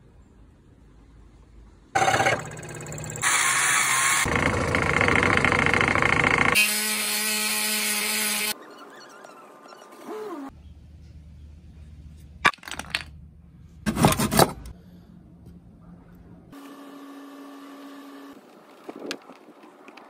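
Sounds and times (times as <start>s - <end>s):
scroll saw cutting wood: 2.0s - 8.6s.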